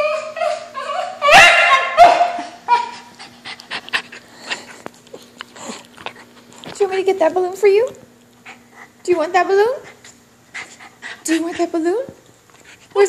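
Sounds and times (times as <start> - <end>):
dog yelping: 0.0 - 3.1
dog whining: 0.0 - 6.4
dog paws clicking and scuffling: 2.4 - 8.9.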